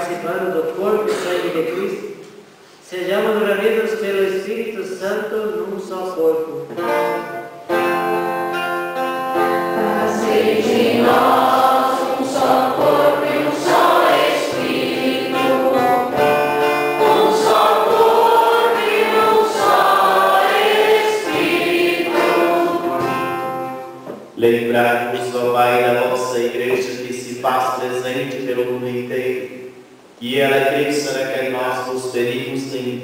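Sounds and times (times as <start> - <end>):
group singing a hymn: 9.4 - 24.0.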